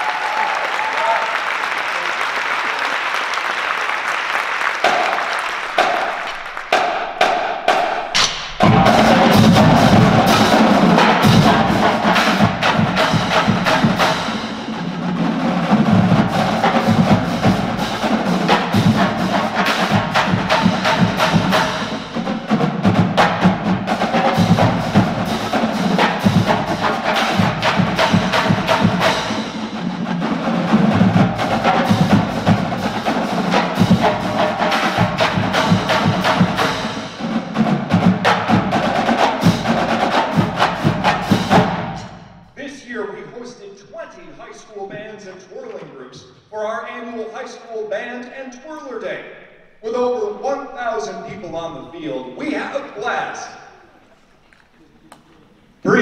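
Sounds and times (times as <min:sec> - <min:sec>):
applause: 0:00.0 - 0:06.9
marching drumline playing: 0:04.7 - 0:42.5.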